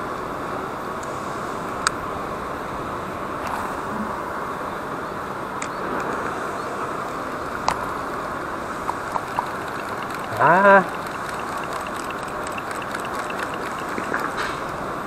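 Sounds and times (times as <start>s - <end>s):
outdoor background noise: 0.0s - 15.0s
fishing reel clicks: 9.2s - 14.3s.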